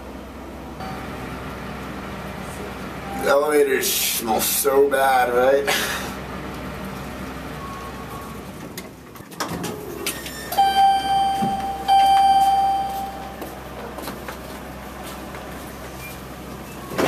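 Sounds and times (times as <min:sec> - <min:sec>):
elevator chime dings: 0:00.8 - 0:01.4, 0:10.4 - 0:13.6.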